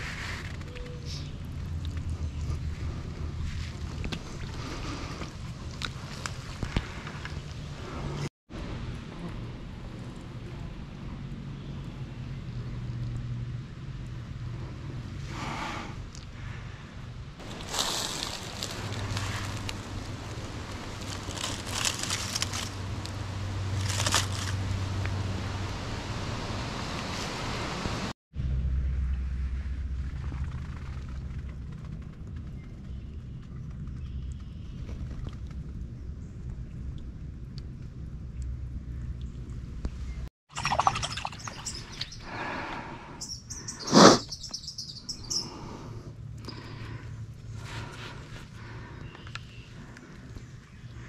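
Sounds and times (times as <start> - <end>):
dry leaves rustling: 17.4 - 24.8
small birds chirping: 40.8 - 42.5, 43.1 - 45.9, 48.6 - 51.0.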